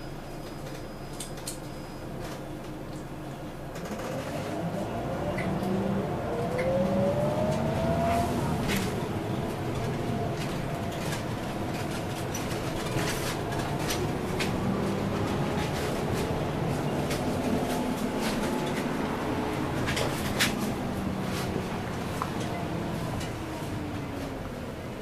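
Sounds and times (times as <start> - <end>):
bus drivetrain whine: 0.0 - 25.0
bus body rattles and knocks: 3.7 - 4.4, 7.5 - 24.4.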